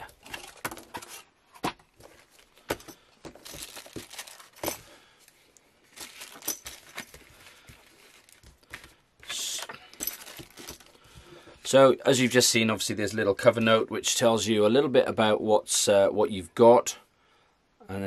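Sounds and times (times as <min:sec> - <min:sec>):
packaging rustling and crinkling: 0:00.0 - 0:11.2.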